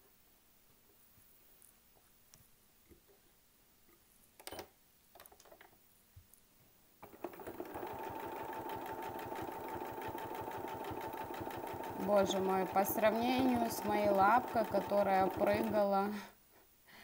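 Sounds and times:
sewing machine stitching: 0:07.0 - 0:16.0.

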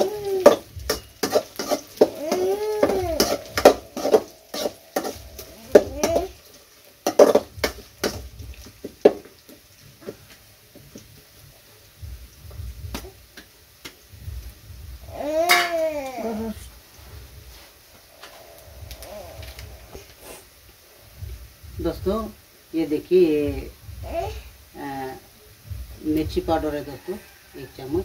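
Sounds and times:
metal spatula scraping a pan: 0:00.0 - 0:09.5
animal cries rising and falling: 0:18.9 - 0:20.0.

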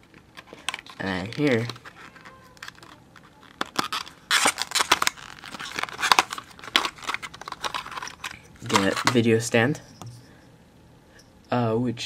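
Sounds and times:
packaging rustling and clicking: 0:00.0 - 0:09.3.

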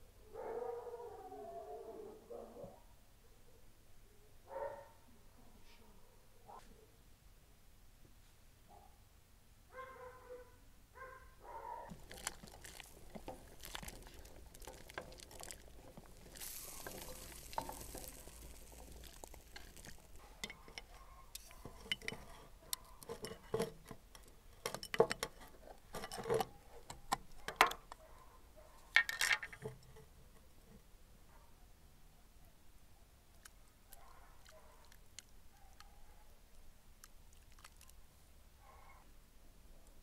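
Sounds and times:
vegetables dropped into broth: 0:11.9 - 0:21.0
spoon clinking in glass jar: 0:16.2 - 0:22.4.

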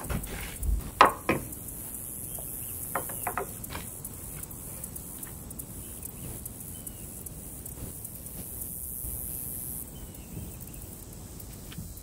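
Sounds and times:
glass jar knocking on wood: 0:01.0 - 0:01.5, 0:02.9 - 0:03.6.

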